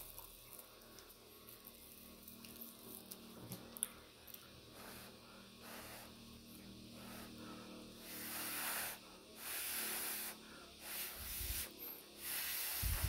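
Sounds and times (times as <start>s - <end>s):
breathy huffs of air through mouth: 4.7s - 13.0s.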